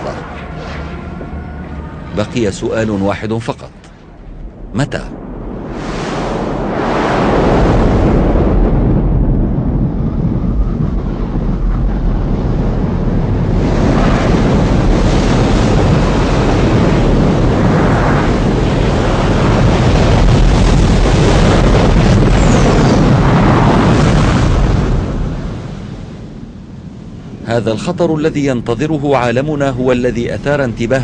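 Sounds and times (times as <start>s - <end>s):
deep rumbling roar: 0.0s - 3.4s.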